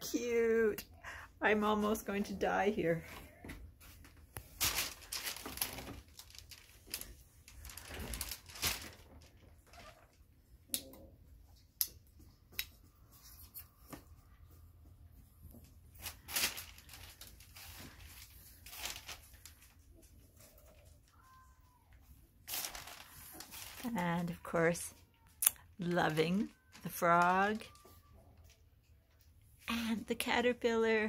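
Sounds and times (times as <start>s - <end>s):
paper crinkling: 3.8s - 10.2s, 15.5s - 21.6s, 22.4s - 29.2s.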